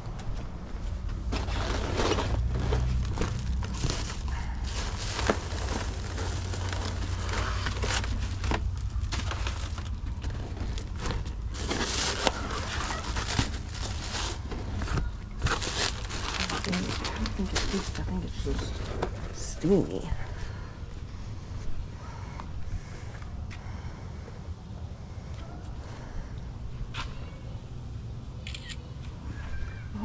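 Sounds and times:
plastic bags rustling: 1.1s - 20.6s.

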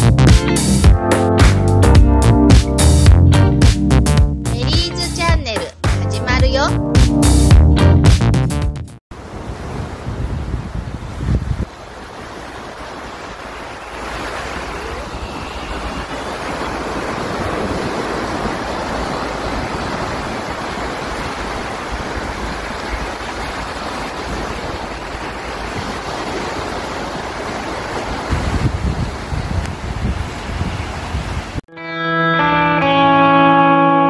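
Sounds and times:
small waves washing on shore: 9.1s - 31.6s
wind buffeting microphone: 9.2s - 13.2s, 14.0s - 31.6s.

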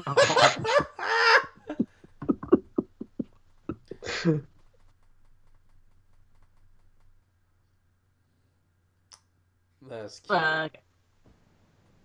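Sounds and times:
person laughing: 0.0s - 4.4s.

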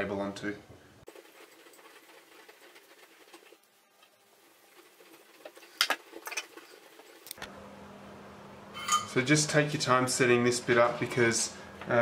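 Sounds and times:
low steady hum: 7.4s - 12.0s.

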